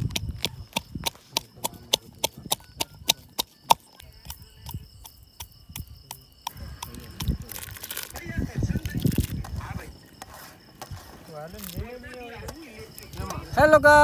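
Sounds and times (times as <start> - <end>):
pestle pounding in mortar: 0.0 - 7.4.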